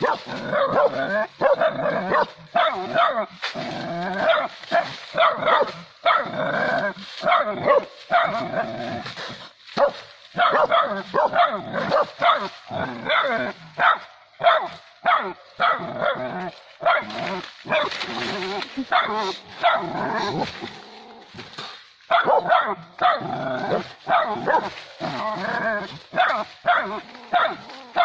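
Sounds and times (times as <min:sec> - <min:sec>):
dog barking and yelping: 0:00.0 - 0:03.3, 0:04.2 - 0:06.4, 0:07.2 - 0:08.5, 0:09.8 - 0:18.0, 0:18.8 - 0:20.4, 0:22.1 - 0:24.8, 0:25.6 - 0:28.0.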